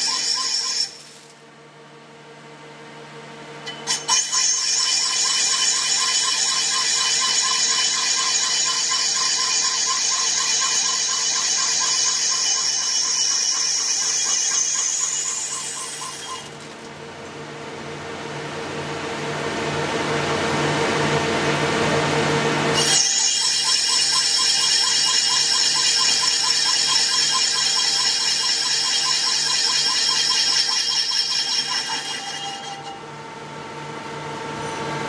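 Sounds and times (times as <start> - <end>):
lathe machining steel: 0.0 - 1.4, 3.7 - 16.8, 22.8 - 33.2
high-pitched machining whine: 0.0 - 1.5, 3.6 - 16.9, 22.6 - 35.0.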